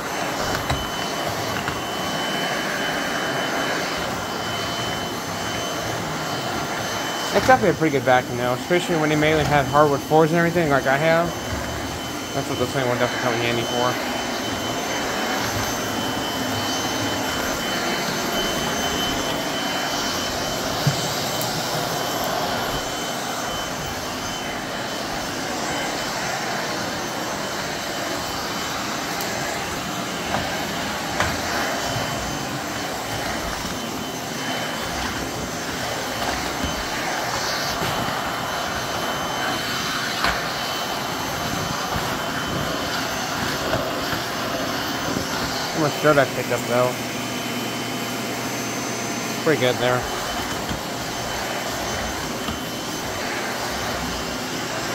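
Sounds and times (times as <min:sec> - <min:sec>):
vacuum cleaner running: 0:00.0 - 0:54.9
floor brush on hardwood floor: 0:08.7 - 0:45.8, 0:49.6 - 0:54.9.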